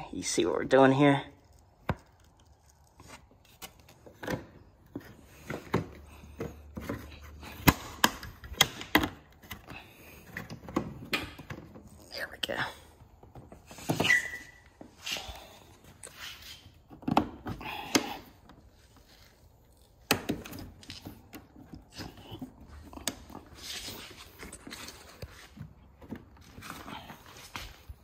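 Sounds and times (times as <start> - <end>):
plastic squeak: 13.7 - 14.9.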